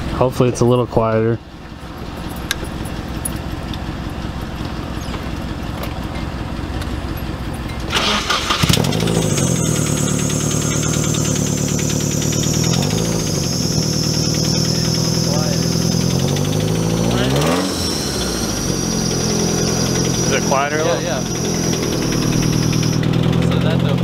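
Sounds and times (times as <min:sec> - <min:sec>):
car engine running and revving: 0:01.5 - 0:24.0
car engine cranking: 0:01.6 - 0:24.0
thin high whine: 0:09.2 - 0:23.1.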